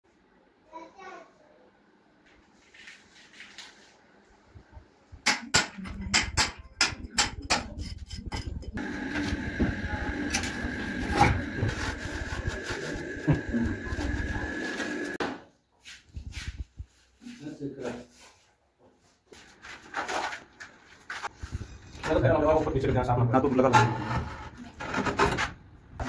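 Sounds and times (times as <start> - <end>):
scraping and handling noise: 15.9 - 22.8.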